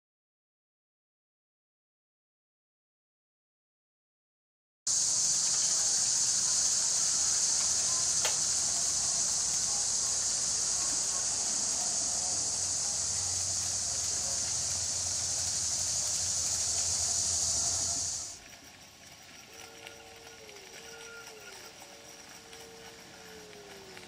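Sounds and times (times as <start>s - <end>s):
insects droning: 4.9s - 24.0s
model train humming: 4.9s - 24.0s
sharp click: 8.2s - 8.4s.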